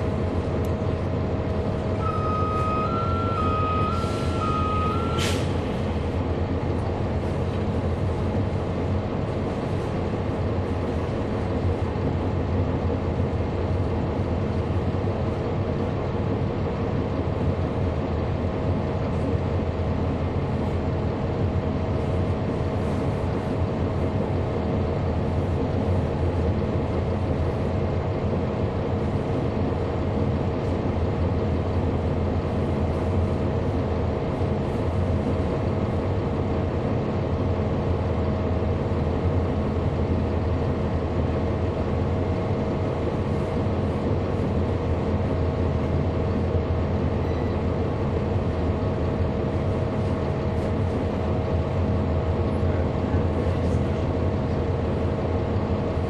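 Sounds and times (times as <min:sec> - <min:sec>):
bus diesel engine droning: 0:00.0 - 0:56.0
air brake hiss: 0:03.9 - 0:05.8.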